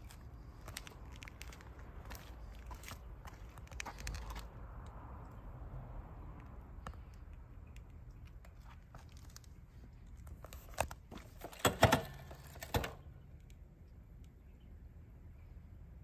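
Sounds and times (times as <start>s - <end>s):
crinkling rustles: 0.0s - 4.5s, 8.2s - 12.8s.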